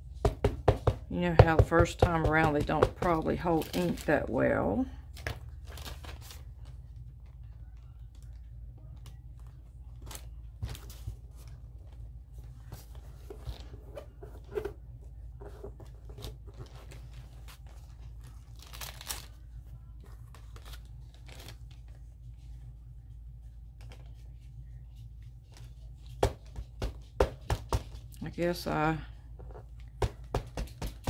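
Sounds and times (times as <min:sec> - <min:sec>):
low steady hum: 0:00.0 - 0:31.0
stamps tapping and scraping: 0:00.2 - 0:03.2
paper rustling: 0:05.1 - 0:06.9, 0:15.4 - 0:22.6.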